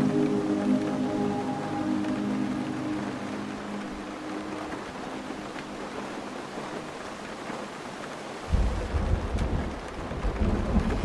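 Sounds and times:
steady rain falling: 0:00.0 - 0:11.0
thunder rumbling: 0:08.4 - 0:11.0.

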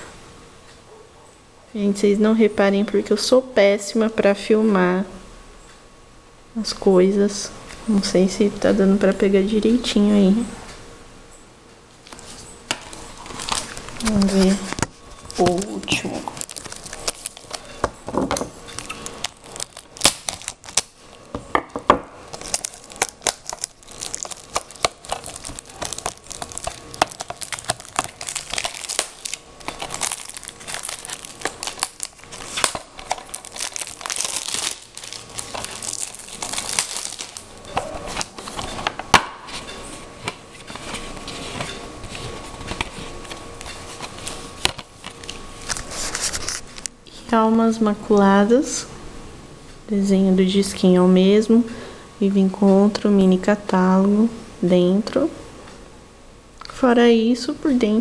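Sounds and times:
plastic packaging crinkling and tearing: 0:12.0 - 0:21.4, 0:22.2 - 0:46.9
sharp clicks and crackles: 0:22.3 - 0:38.7.

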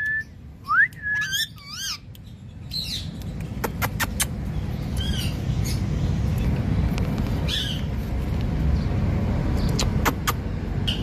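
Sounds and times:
steady low rumble: 0:00.0 - 0:11.0
parakeet squawking: 0:01.2 - 0:02.0, 0:05.0 - 0:05.9, 0:07.4 - 0:07.9.

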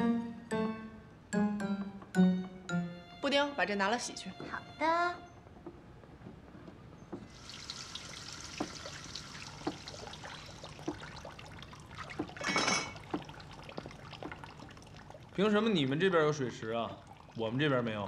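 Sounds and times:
tap running into sink: 0:07.3 - 0:10.2, 0:12.1 - 0:14.4
water splashing: 0:07.3 - 0:18.0
light knocks and clinks: 0:12.2 - 0:13.2.

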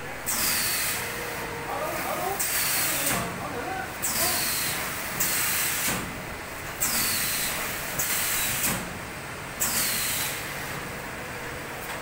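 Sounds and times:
pneumatic air hiss: 0:00.3 - 0:01.0, 0:04.0 - 0:06.0, 0:06.8 - 0:08.8, 0:09.6 - 0:10.5.

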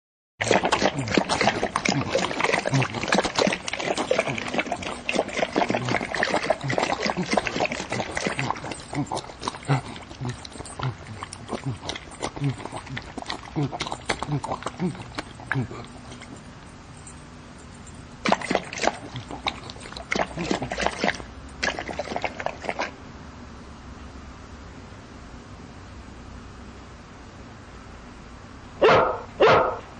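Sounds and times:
dog lapping from metal bowl: 0:00.4 - 0:17.1, 0:18.2 - 0:23.0.

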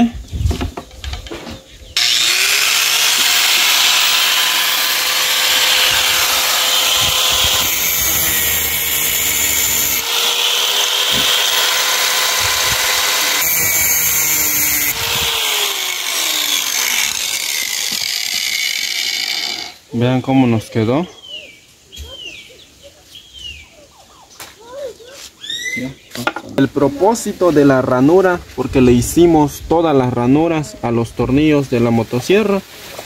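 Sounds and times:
angle grinder grinding steel: 0:02.0 - 0:19.8.

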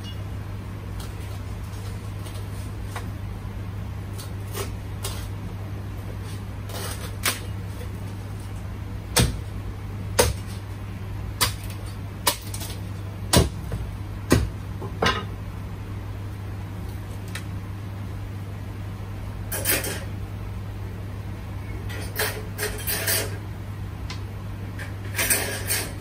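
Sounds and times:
steady low hum: 0:00.0 - 0:26.0
cleaver chopping on a block: 0:09.2 - 0:09.4, 0:10.2 - 0:10.5, 0:13.3 - 0:14.5.

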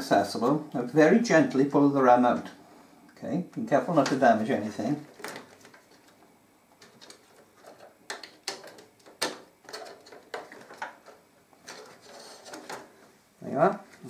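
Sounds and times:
small clicks and rubbing: 0:05.0 - 0:13.1.

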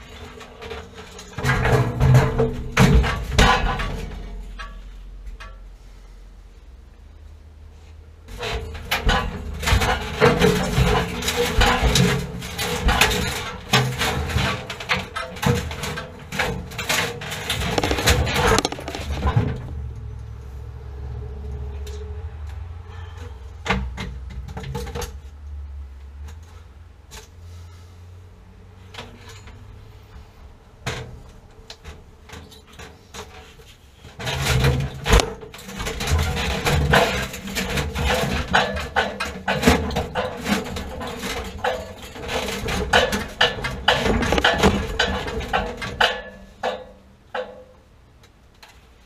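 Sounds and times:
metal parts and tools clattering: 0:00.0 - 0:05.6, 0:08.3 - 0:19.8, 0:31.8 - 0:47.8.

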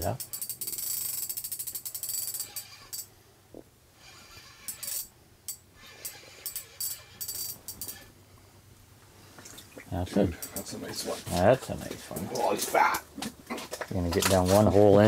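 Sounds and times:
fishing reel ratchet ticking: 0:00.2 - 0:03.1, 0:04.7 - 0:08.1.

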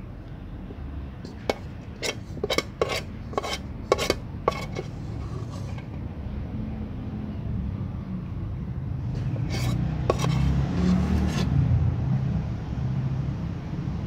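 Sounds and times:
metal spoon clinking on a dish: 0:01.3 - 0:04.9.

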